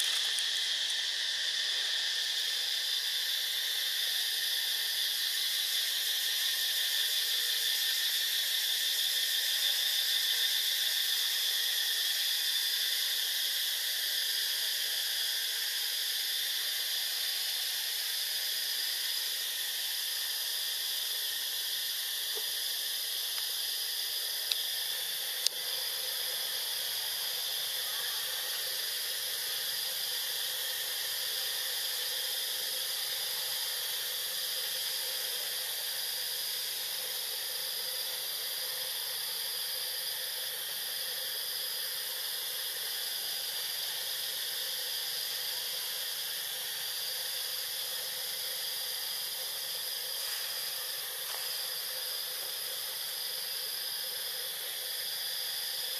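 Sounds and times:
insect chorus drone: 0.0 - 55.9.

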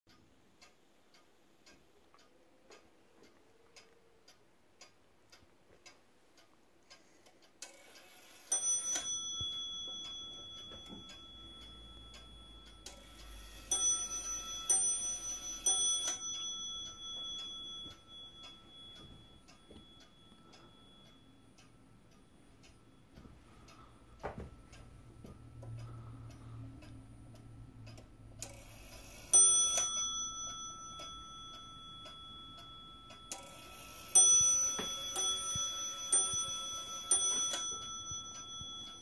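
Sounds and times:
wall clock ticking: 0.1 - 39.0
clock bell striking: 8.4 - 21.6, 29.0 - 39.0.

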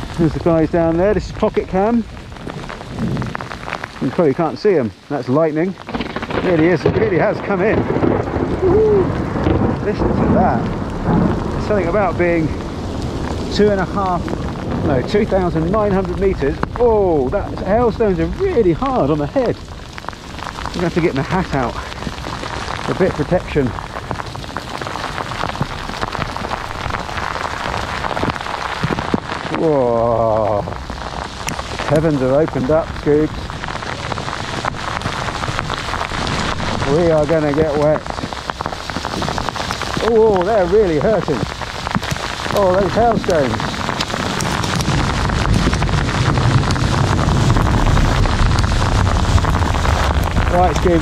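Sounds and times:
hail pelting down: 0.0 - 51.0
wind buffeting microphone: 0.0 - 51.0
man calling out whoa: 8.6 - 9.2.

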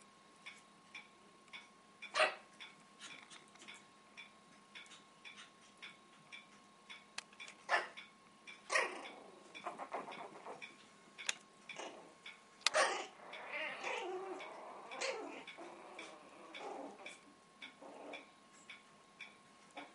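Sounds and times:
puppies play-growling: 8.7 - 10.8, 11.7 - 18.3.

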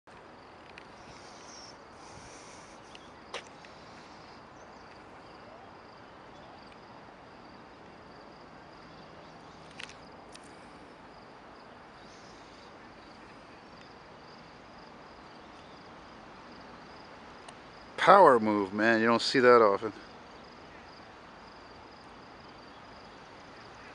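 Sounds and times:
insects chirping: 0.1 - 23.9
low hiss: 0.1 - 23.9.

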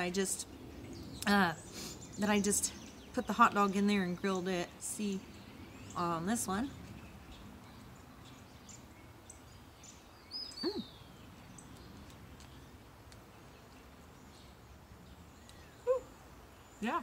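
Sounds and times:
faint bird chirps: 6.8 - 12.8, 15.2 - 17.0.

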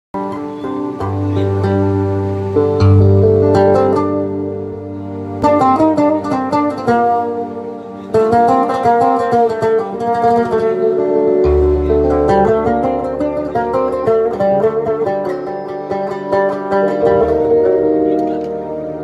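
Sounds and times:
held electronic keyboard notes: 0.1 - 19.0
oud plucked melody: 0.2 - 19.0
deep held bass note: 11.4 - 14.0, 17.0 - 19.0.

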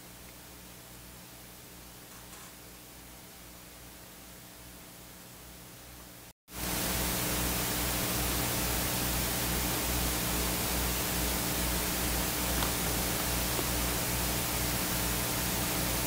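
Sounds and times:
low electrical hum: 0.0 - 16.0
steady hiss: 0.0 - 16.0.

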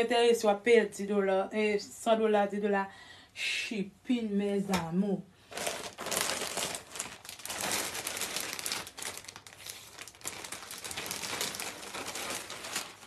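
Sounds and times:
plastic bag crinkling: 5.5 - 13.0.

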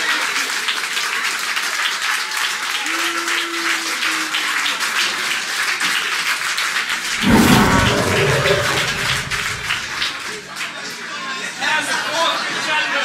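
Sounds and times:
deep rumble: 7.1 - 10.1.

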